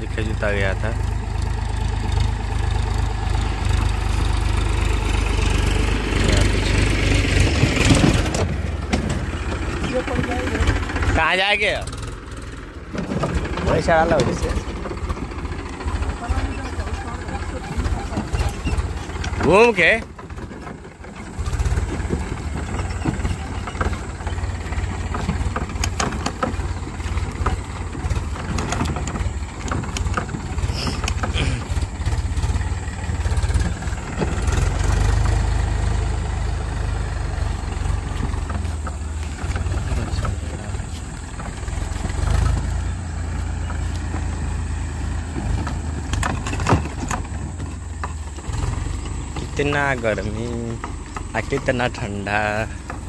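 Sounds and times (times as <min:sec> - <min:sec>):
tractor diesel engine under load: 0:00.0 - 0:53.0.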